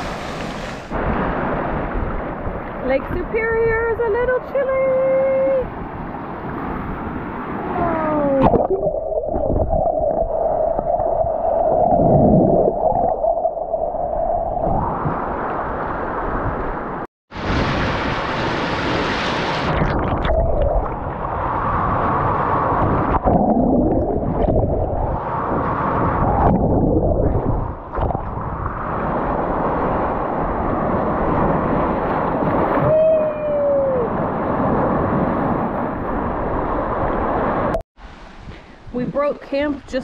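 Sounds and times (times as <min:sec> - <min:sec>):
water sloshing around microphone: 0:05.4 - 0:17.0, 0:19.6 - 0:32.9.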